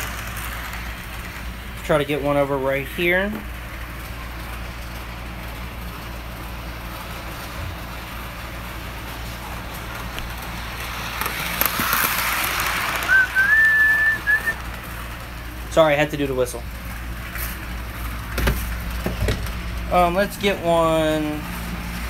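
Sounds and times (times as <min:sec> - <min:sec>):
model train running: 0:00.0 - 0:18.9, 0:19.5 - 0:22.0
person whistling a note: 0:13.1 - 0:14.6.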